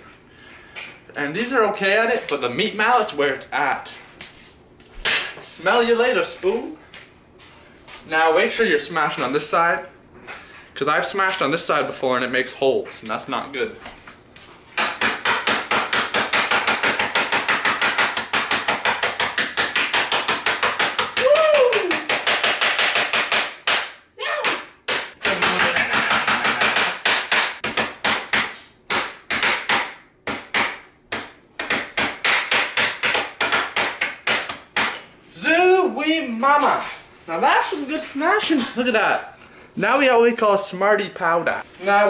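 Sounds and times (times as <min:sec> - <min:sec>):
mallet pounding candy in bag: 0:14.8 - 0:35.0.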